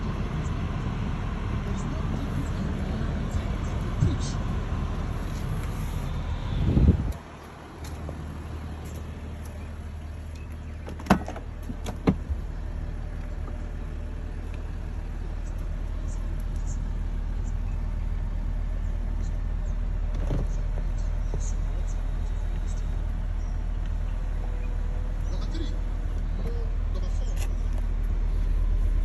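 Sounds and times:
steady low rumble: 0:00.0 - 0:29.0
car door thump: 0:10.8 - 0:12.3.

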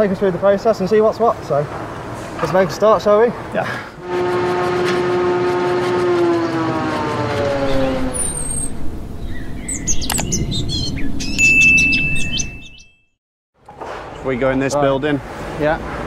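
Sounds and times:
tone sliding down in pitch: 0:04.0 - 0:09.0
sharp click: 0:10.0 - 0:10.4.

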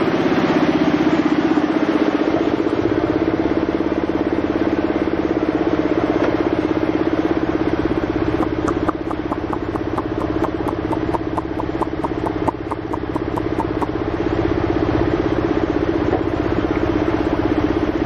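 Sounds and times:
motor running with even pulse: 0:08.4 - 0:14.1.

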